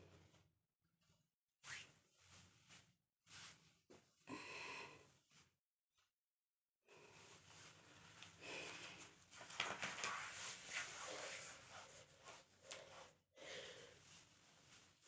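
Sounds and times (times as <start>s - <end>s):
woman breathing hard: 4.3s - 5.1s, 13.4s - 14.1s.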